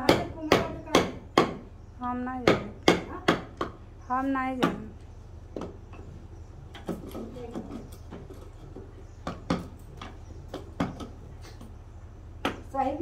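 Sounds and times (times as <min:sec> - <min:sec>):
chisel knocking on wood: 0:00.0 - 0:01.7, 0:02.4 - 0:03.8, 0:04.6 - 0:04.9, 0:06.7 - 0:11.7.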